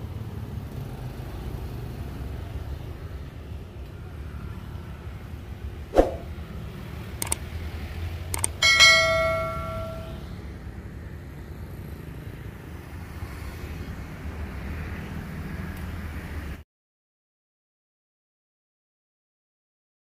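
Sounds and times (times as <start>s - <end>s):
low hum of motorbike traffic: 0.0s - 16.6s
mouse clicks: 7.2s - 7.4s
bright bell chime: 8.6s - 10.3s.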